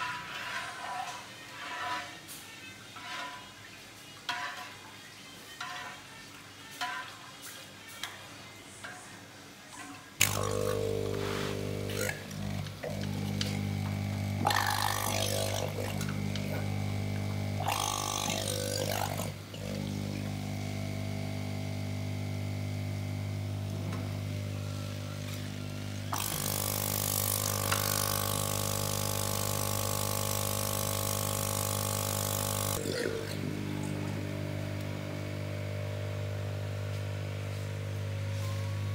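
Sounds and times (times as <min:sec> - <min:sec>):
low machine hum: 0:10.2 - 0:38.9.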